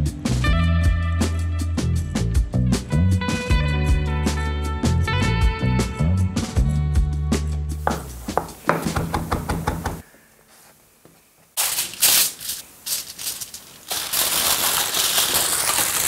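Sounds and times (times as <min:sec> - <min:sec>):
aluminium foil crinkling: 0:11.6 - 0:16.0.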